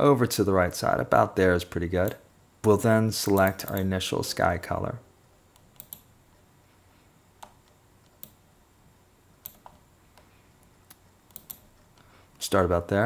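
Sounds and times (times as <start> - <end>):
faint room hiss: 0.0 - 13.0
mouse and keyboard clicks: 5.6 - 6.1, 9.4 - 11.7.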